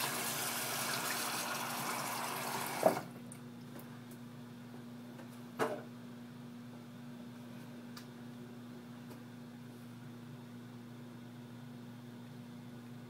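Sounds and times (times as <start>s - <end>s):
sink tap running: 0.0s - 3.0s.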